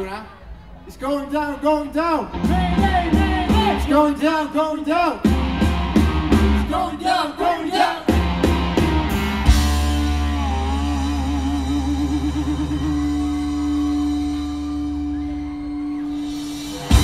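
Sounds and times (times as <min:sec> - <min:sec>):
live rock band playing: 0:02.3 - 0:04.2, 0:05.2 - 0:06.8, 0:08.1 - 0:17.0.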